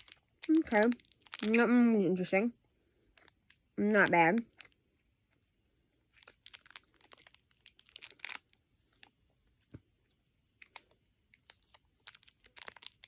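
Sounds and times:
plastic candy wrapper crinkling: 0.0 - 2.2, 3.0 - 4.8, 6.1 - 9.8, 10.6 - 13.0.

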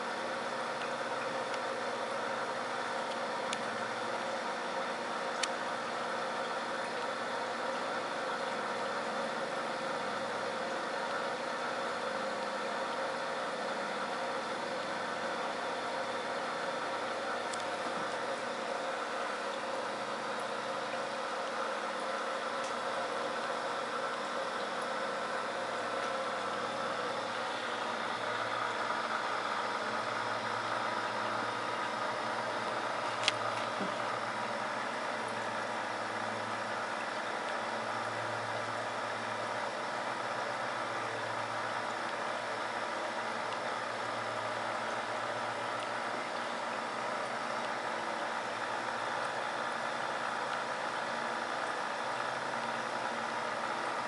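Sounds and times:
air pump hum: 0.0 - 54.0
air stone bubbling: 16.4 - 37.9.

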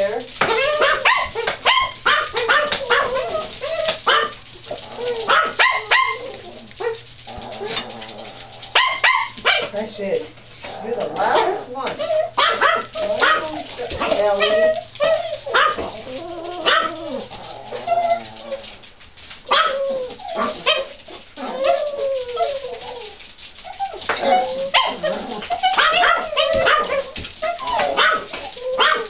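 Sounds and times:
dogs barking: 0.3 - 9.8, 10.6 - 18.6, 19.5 - 22.3, 23.7 - 29.0
small dogs whining and yipping: 0.4 - 7.9, 11.9 - 18.7, 19.5 - 29.0.

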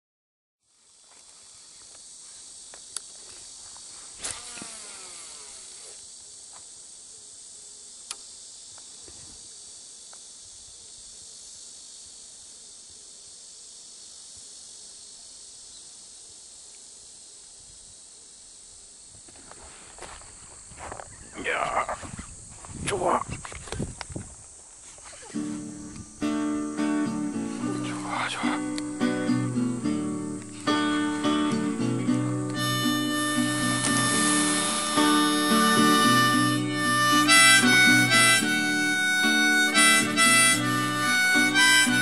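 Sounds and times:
insects chirring chorus: 0.6 - 42.0
faint sharp clicks: 8.0 - 8.9.

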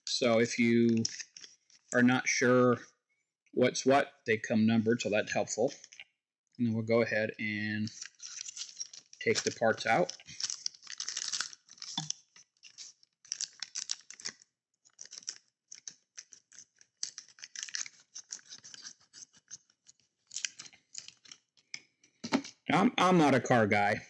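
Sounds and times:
plastic bag crinkling: 7.9 - 21.4.

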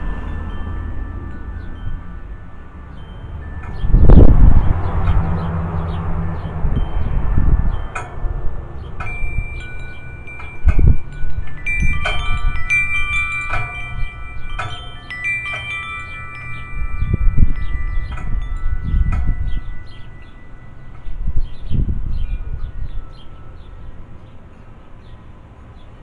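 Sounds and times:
wind rumble on microphone: 0.0 - 24.3
metal wind chimes clanging: 0.0 - 25.4.

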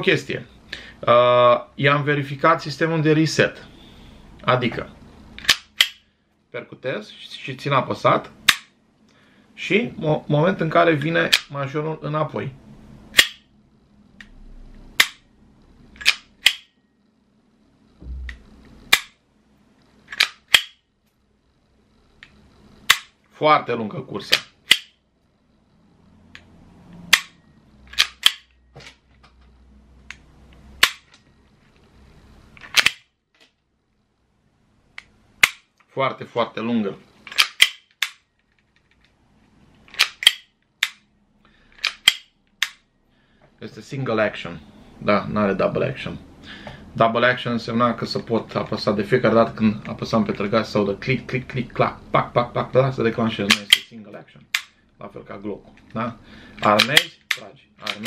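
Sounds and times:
pistol slide clicks: 5.4 - 6.0, 13.1 - 13.4, 16.0 - 16.7, 20.1 - 20.8, 24.3 - 24.9, 27.1 - 28.5, 30.8 - 31.1, 32.6 - 33.0, 37.3 - 38.2, 39.9 - 41.0, 41.8 - 42.8
pistol trigger clicks: 20.1 - 20.8, 37.3 - 38.2, 41.8 - 42.8.

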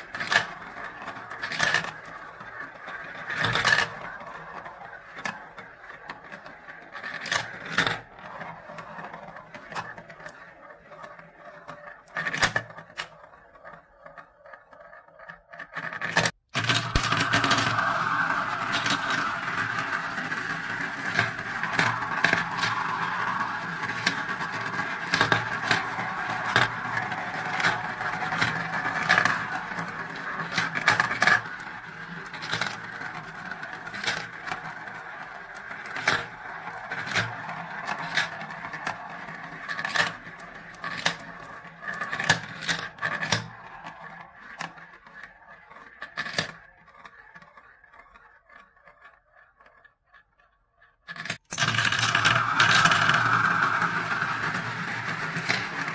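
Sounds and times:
marbles rolling in plastic bowls: 0.0 - 55.9
marbles clicking together: 16.7 - 44.1, 51.5 - 55.9.

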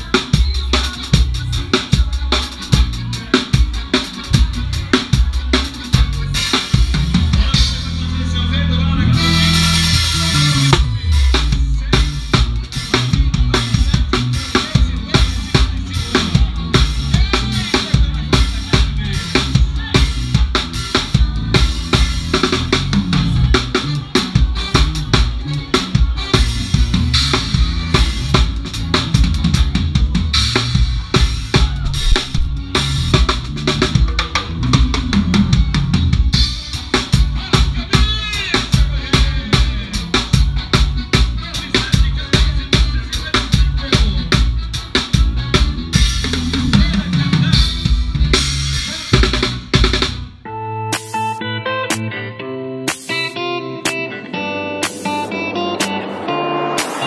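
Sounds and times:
band playing: 0.0 - 57.0
snare drum: 31.6 - 32.6.

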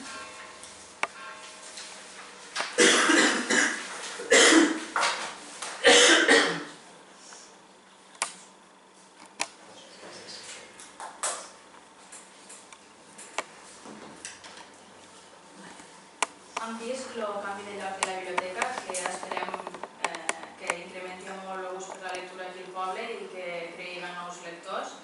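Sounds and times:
person coughing: 2.8 - 4.8, 5.8 - 6.8.

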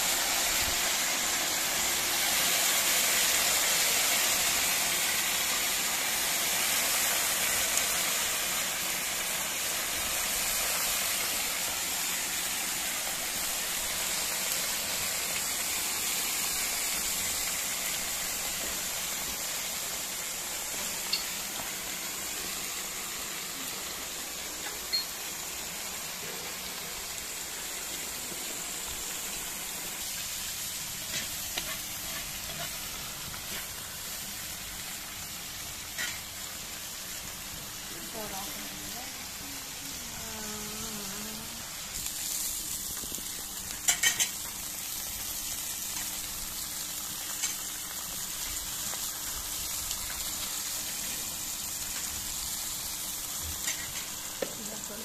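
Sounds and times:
vegetables sizzling in hot oil: 0.0 - 55.0.

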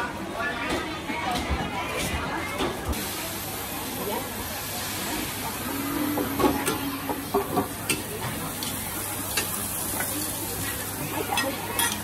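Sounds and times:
batter sizzling in a pan: 2.9 - 12.0
utensils clinking: 6.5 - 12.0.

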